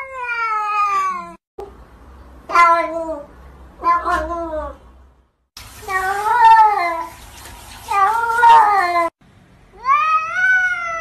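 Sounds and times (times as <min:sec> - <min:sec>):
cat meowing: 0:09.8 - 0:11.0.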